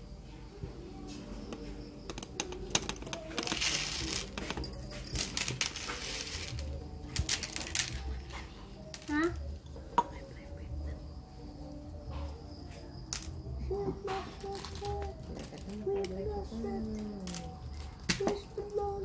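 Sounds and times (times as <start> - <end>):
coffee grounds rustling: 2.1 - 9.1.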